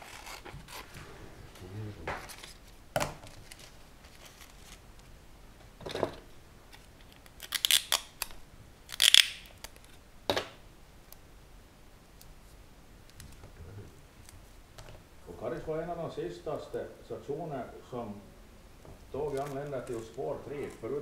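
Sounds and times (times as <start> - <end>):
scissors snipping paper: 19.2 - 21.0.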